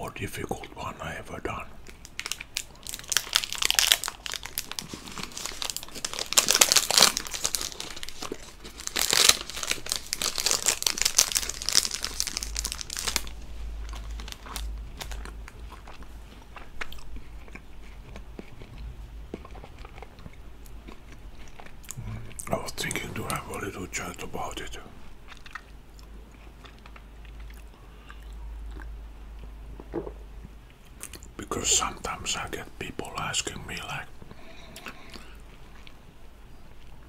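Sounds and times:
chocolate wafer crunching: 0:01.5 - 0:28.9
chewing: 0:13.9 - 0:23.8, 0:25.3 - 0:29.5, 0:34.6 - 0:36.0.

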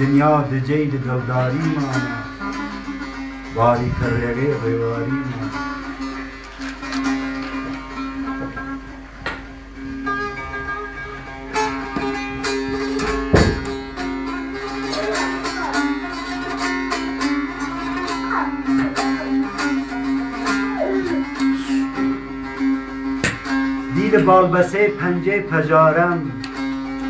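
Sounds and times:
plucked lute notes: 0:00.0 - 0:27.0
sharp thump: 0:13.0 - 0:13.9.

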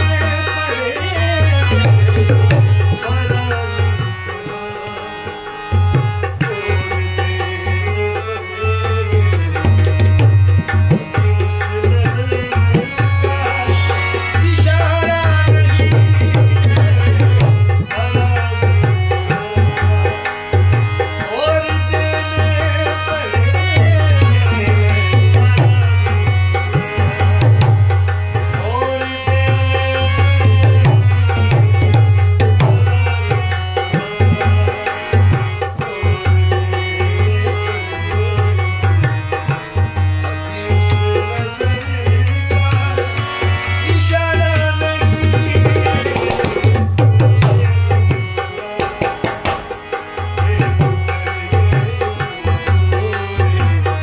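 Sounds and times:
harmonium melody with chords: 0:00.0 - 0:54.0.

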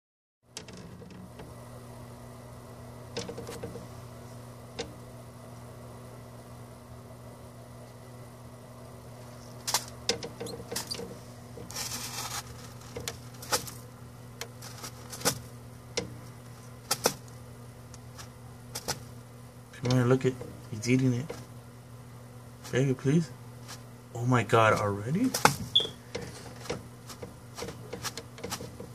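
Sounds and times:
steady low hum: 0:00.5 - 0:28.9
short rustle: 0:11.6 - 0:13.8.

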